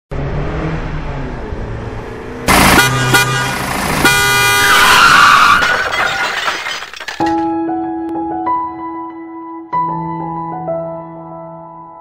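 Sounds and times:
car engine running: 2.4s - 4.6s
car horn blaring: 2.5s - 5.6s.

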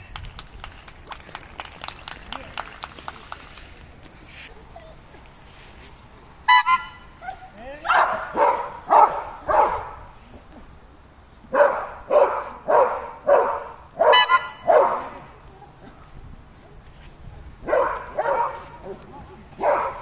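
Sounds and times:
dog barking: 7.2s - 10.0s, 11.5s - 15.7s, 17.6s - 20.0s.

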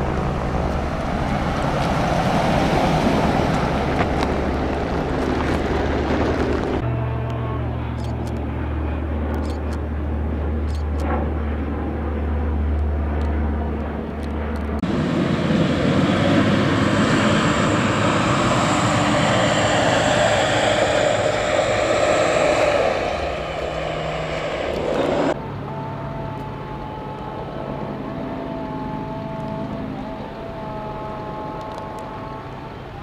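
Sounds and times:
aircraft engines droning: 0.0s - 33.0s
aircraft passing with roar and whine: 0.0s - 33.0s.

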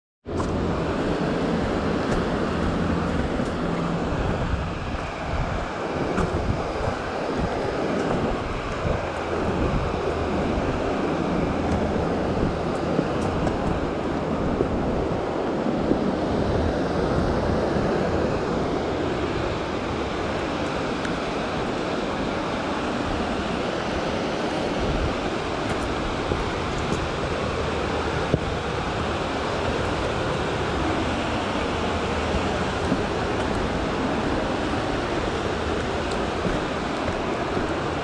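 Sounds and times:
wind on microphone: 0.2s - 38.0s
rushing river rapids: 0.3s - 38.0s.

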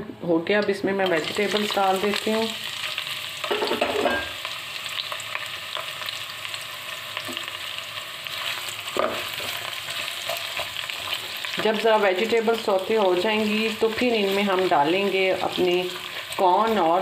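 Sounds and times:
vegetables sizzling in hot oil: 1.0s - 17.0s
spatula scraping a wok: 8.2s - 11.6s.

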